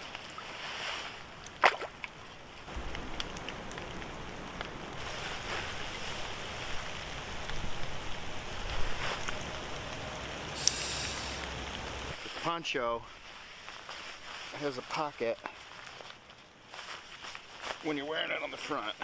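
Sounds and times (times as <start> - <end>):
water sloshing and splashing: 0.0 - 10.4
steady wash of noise: 4.6 - 12.2.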